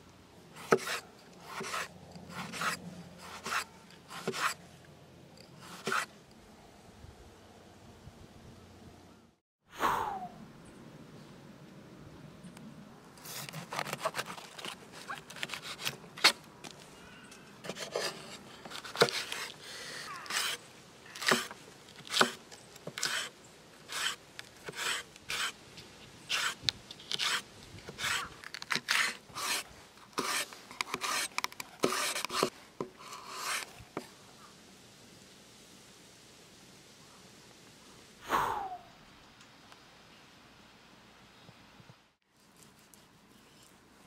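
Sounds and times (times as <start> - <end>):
knife scraping board: 0.6 - 4.6, 5.6 - 6.1, 17.6 - 19.5, 20.2 - 20.6, 21.2 - 23.3, 23.9 - 25.6, 26.3 - 29.6, 30.2 - 33.7
knife slicing peppers on wooden board: 0.6 - 4.6, 21.2 - 21.5.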